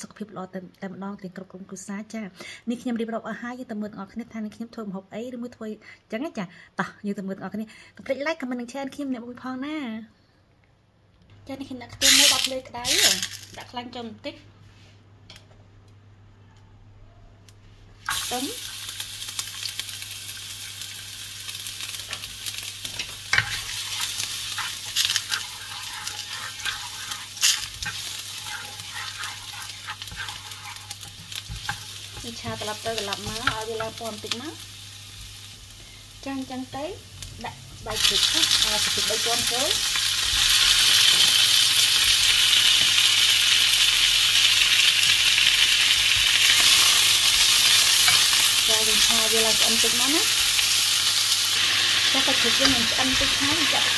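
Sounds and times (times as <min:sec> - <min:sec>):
garlic sizzling in oil: 0:12.0 - 0:13.4, 0:18.0 - 0:53.9
wooden spatula scraping pan: 0:23.0 - 0:34.0.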